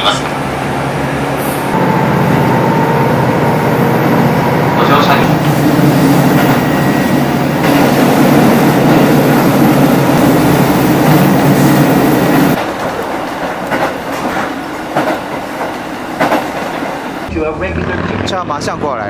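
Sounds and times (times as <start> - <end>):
diesel engine drone: 0.0 - 12.6
train coasting rumble: 0.0 - 19.0.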